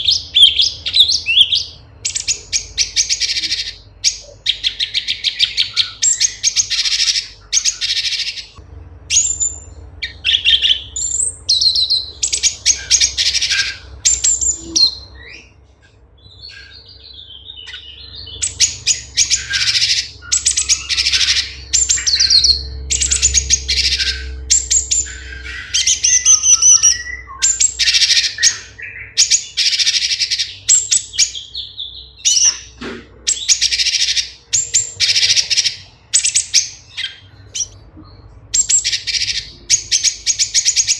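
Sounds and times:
bird singing sharp chirps: 16.2s - 37.8s.

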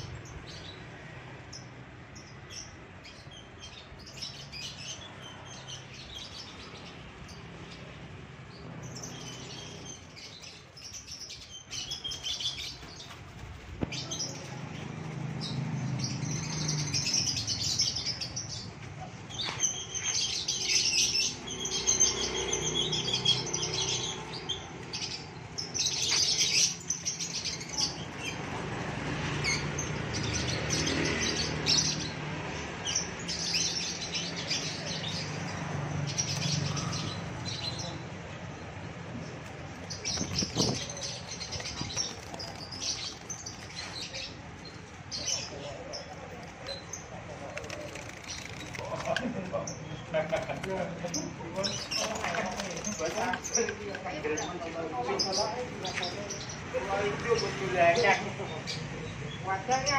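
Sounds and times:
birds chirping and twittering: 0.0s - 59.9s
wing flaps: 39.4s - 44.4s, 46.2s - 53.9s.

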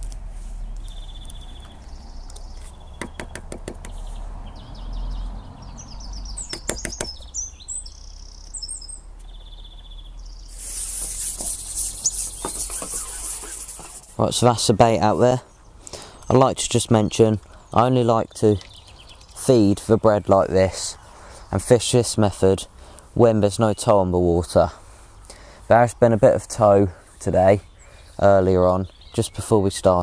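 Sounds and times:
songbirds singing: 0.0s - 30.0s
burst of hiss: 10.5s - 14.2s.

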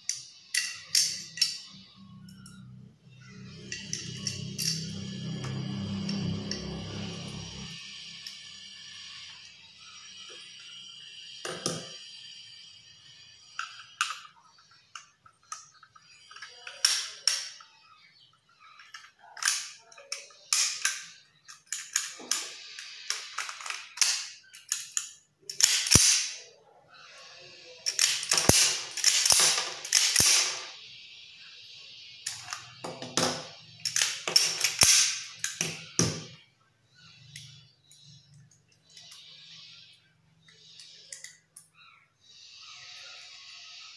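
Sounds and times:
pistol metal clicks and clacks: 19.4s - 22.4s, 23.1s - 26.4s, 27.9s - 30.7s, 33.8s - 36.2s.

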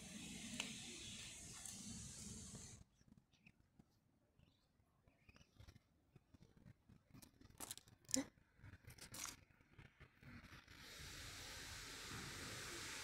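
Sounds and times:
steady hiss: 0.0s - 2.8s, 10.7s - 13.0s.

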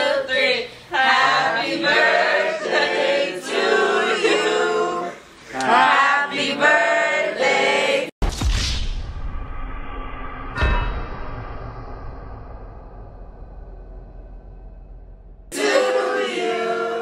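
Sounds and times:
group of people singing: 0.0s - 8.1s, 15.5s - 17.0s
deep low boom: 8.2s - 15.5s.

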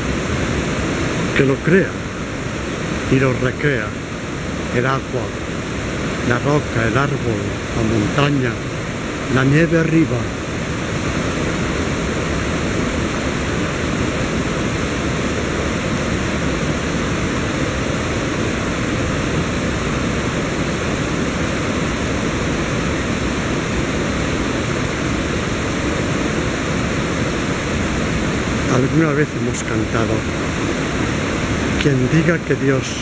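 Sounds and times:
river rushing over rocks: 0.0s - 33.0s.

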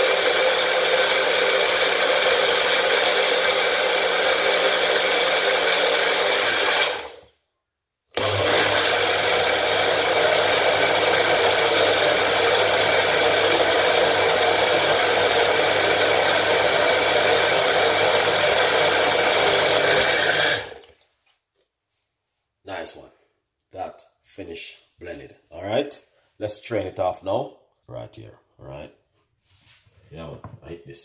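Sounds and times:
blender motor running: 0.0s - 7.3s, 8.2s - 20.9s.

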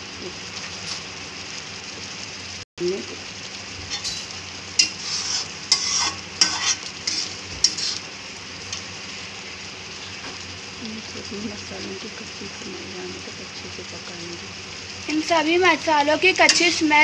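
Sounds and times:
masala sizzling in oil: 0.0s - 17.0s
spatula stirring and scraping: 3.8s - 8.1s.

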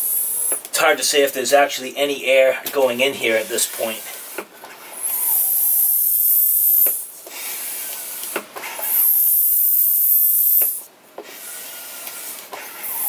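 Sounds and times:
air hissing from valve: 5.0s - 13.0s.

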